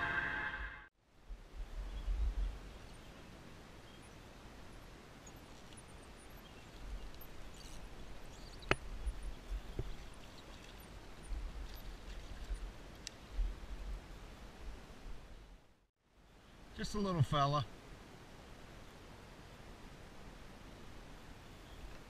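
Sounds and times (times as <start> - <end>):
wind on microphone: 1.3 - 2.8.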